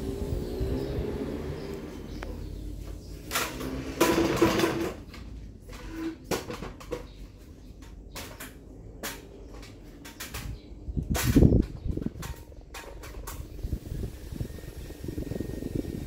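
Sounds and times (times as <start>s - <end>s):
airflow buffeting microphone: 0.0s - 3.3s, 10.4s - 16.0s
fan clicks and ticks: 7.8s - 16.0s
ceiling fan humming: 10.2s - 16.0s.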